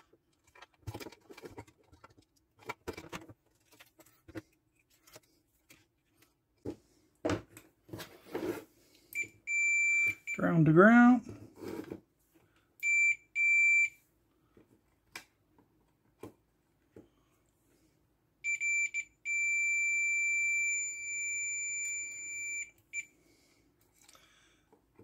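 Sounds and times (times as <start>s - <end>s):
multimeter continuity beeps: 9.2s - 10.6s, 12.8s - 14.0s, 18.4s - 23.1s.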